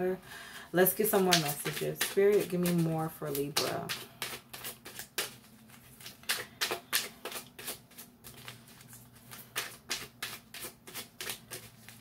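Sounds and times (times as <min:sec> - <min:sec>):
cards being shuffled: 0:01.1 - 0:12.0.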